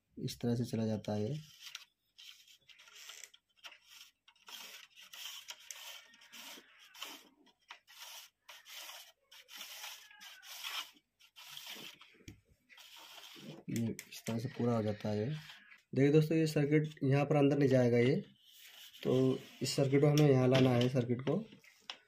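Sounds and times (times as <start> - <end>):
plastic rubbing and scraping: 1.3 - 15.9, 17.9 - 22.0.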